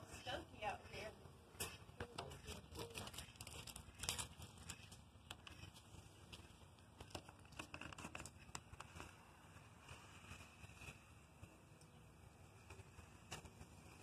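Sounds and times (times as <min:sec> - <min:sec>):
stencil peeling off paint: 0:01.6 - 0:05.9, 0:06.9 - 0:11.2.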